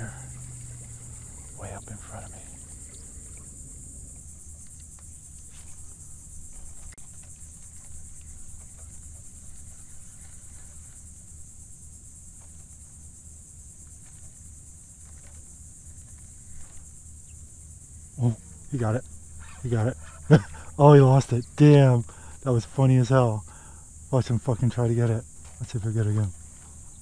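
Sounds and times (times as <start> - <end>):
low rumble: 0.0 - 4.9
faint clicks: 0.0 - 10.6
insects droning: 0.0 - 27.0.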